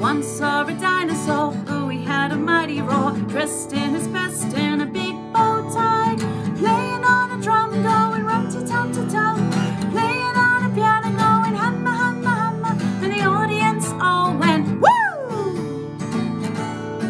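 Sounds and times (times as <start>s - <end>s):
woman singing children's song: 0.0s - 15.6s
acoustic guitar strumming: 0.0s - 17.0s
woman's sliding whoop: 14.8s - 15.6s.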